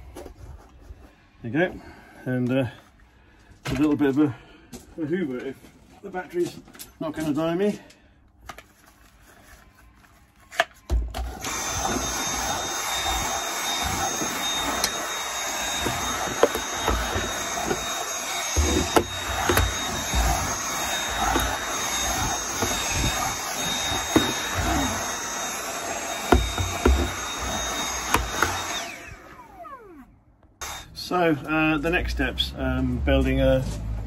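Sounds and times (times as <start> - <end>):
handheld vacuum motor whine: 9.5 - 31.5.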